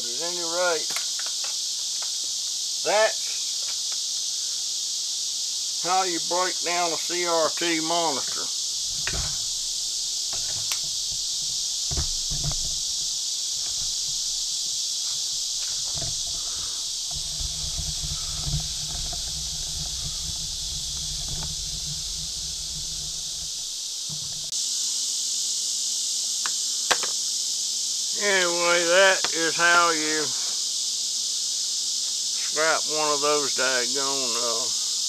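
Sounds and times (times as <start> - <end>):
insects chorus: 0.0 - 35.0
camera handling knocks and rumble: 8.9 - 24.5.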